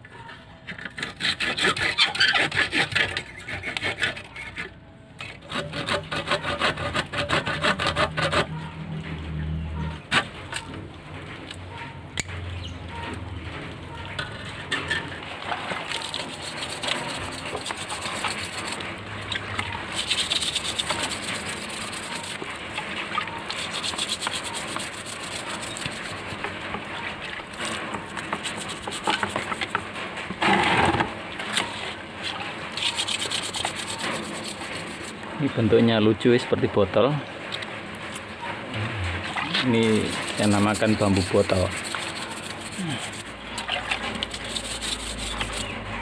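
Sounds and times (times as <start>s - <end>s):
loud scrape: 0.7s - 9.0s, 16.0s - 26.5s, 27.6s - 35.2s, 39.0s - 46.0s
hand scrubbing bamboo: 0.8s - 4.6s, 5.4s - 9.0s, 15.5s - 30.9s, 31.5s - 35.6s, 39.2s - 46.0s.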